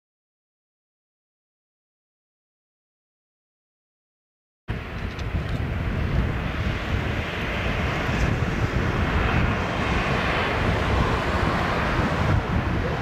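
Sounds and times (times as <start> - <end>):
jet airliner roar on approach: 4.7 - 13.0.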